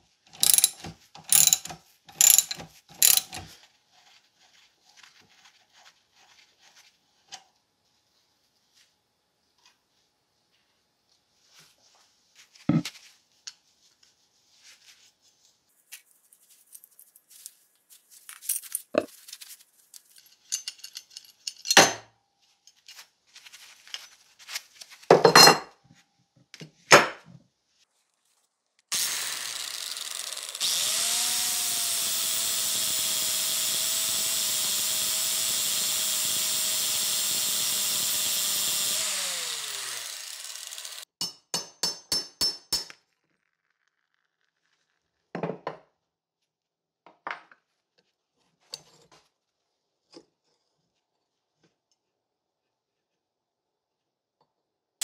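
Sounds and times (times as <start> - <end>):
angle grinder grinding metal: 0.4 - 3.5, 28.9 - 41.2
metal parts clanking on bench: 0.4 - 3.5, 20.1 - 22.0.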